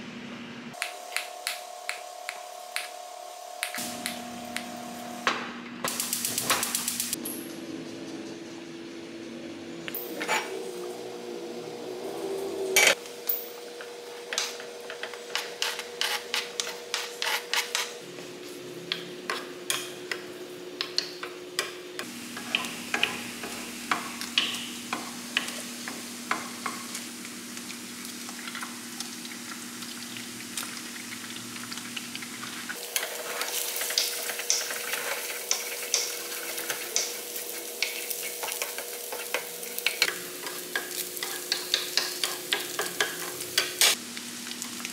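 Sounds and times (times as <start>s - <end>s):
meat sizzling in oil: 22.0s - 44.9s
spatula scraping a pan: 33.0s - 43.9s.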